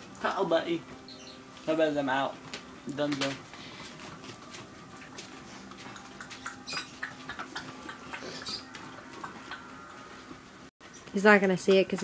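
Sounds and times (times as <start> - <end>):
dogs clicking and scuffling: 2.4 - 12.0.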